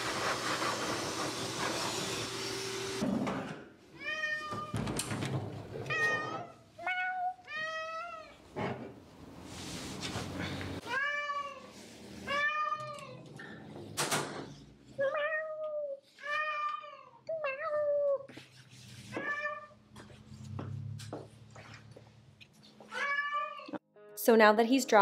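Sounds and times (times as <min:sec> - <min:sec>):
cat meowing: 0:22.9 - 0:23.8.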